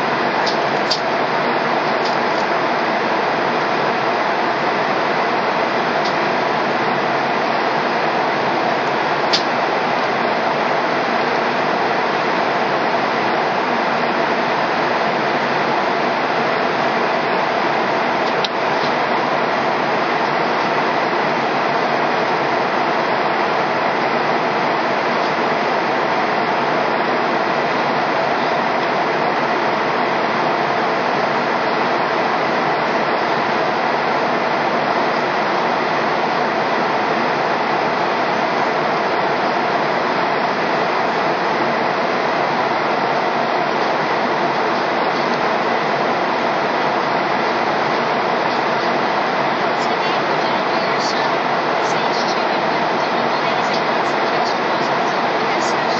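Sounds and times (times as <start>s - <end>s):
airliner cabin noise: 0.0s - 55.9s
jet engine hum: 0.0s - 55.9s.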